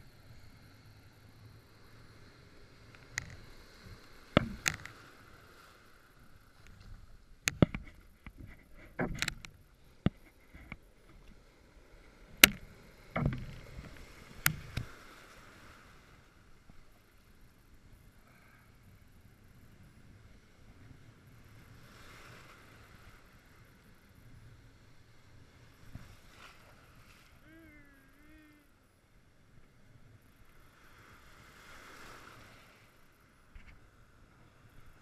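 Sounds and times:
surf washing around rock: 0.0s - 29.2s, 30.0s - 35.0s
sharp knocks and splashes: 4.3s - 4.9s, 12.4s - 14.9s.

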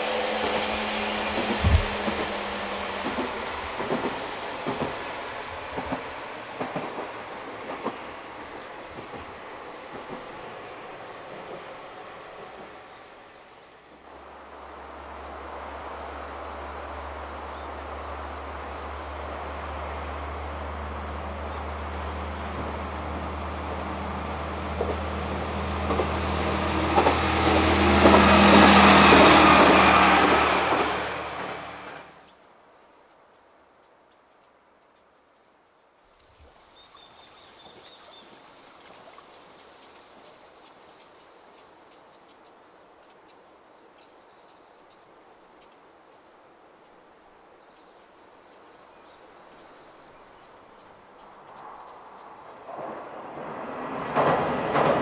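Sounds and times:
diesel railcar engine drone: 0.0s - 32.3s.

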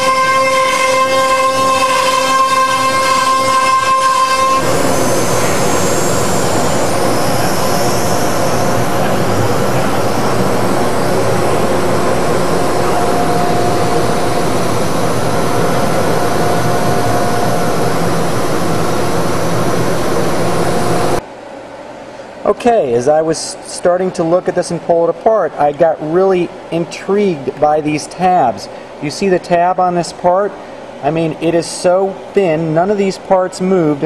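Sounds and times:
router spindle high whine: 0.0s - 21.2s
vacuum rushing air noise: 0.0s - 34.0s.

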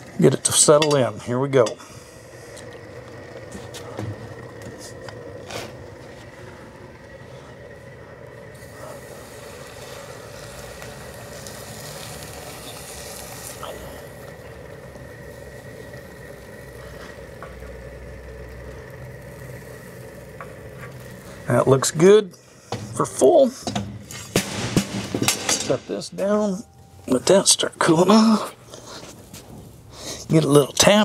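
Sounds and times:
steady machine hum: 0.0s - 31.0s
metal ladle clinks: 0.8s - 1.8s.

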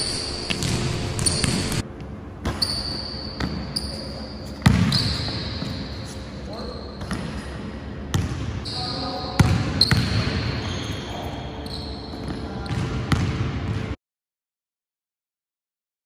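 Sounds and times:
sneakers squeaking: 0.0s - 13.8s
basketball bouncing on hardwood: 0.5s - 1.8s.

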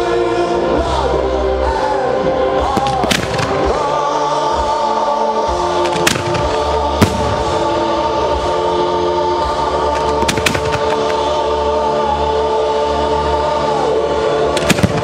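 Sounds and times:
music with long held notes: 0.0s - 15.0s
fireworks bangs: 2.7s - 3.8s, 5.9s - 7.8s, 10.0s - 11.2s, 14.6s - 15.0s.

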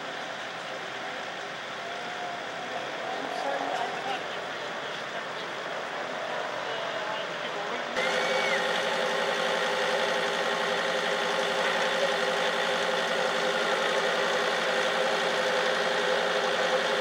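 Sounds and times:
vehicle engine idling: 8.0s - 17.0s.

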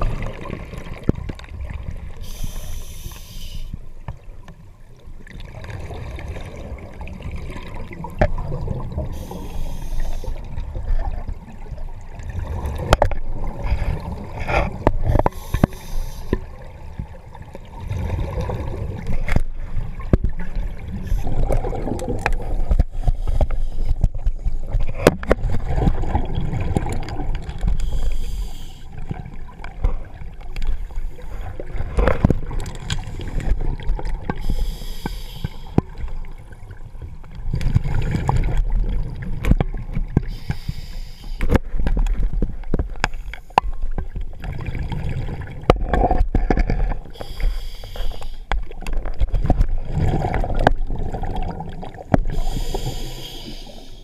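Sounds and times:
bubbles gurgling: 0.0s - 2.2s, 5.2s - 9.6s, 10.4s - 15.3s, 16.4s - 23.0s, 24.0s - 27.8s, 35.9s - 40.3s, 43.6s - 47.2s, 48.7s - 52.6s
underwater diver breathing: 2.2s - 3.8s, 9.0s - 10.6s, 13.5s - 16.7s, 22.4s - 24.1s, 27.6s - 29.2s, 30.7s - 32.1s, 34.3s - 36.1s, 40.2s - 41.7s, 46.4s - 48.8s, 51.9s - 54.0s.

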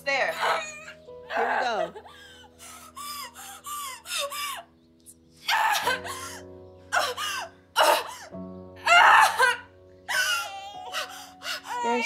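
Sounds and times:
woman crying out: 8.8s - 12.0s.

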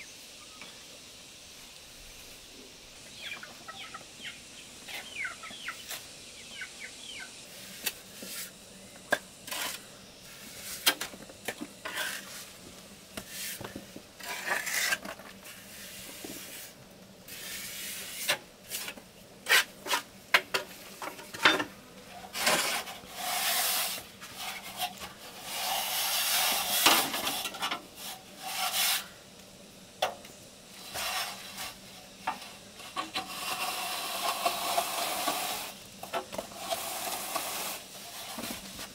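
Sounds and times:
trowel scraping cement: 9.4s - 11.1s, 11.8s - 12.5s, 13.2s - 20.1s, 22.3s - 29.1s, 32.8s - 35.8s, 36.5s - 38.9s.

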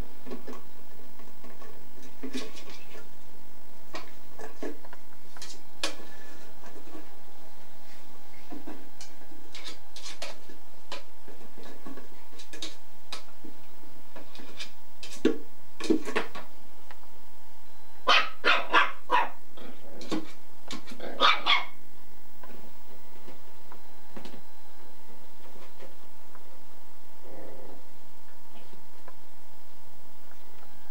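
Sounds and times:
puppy yapping: 18.0s - 19.4s, 21.0s - 21.8s.

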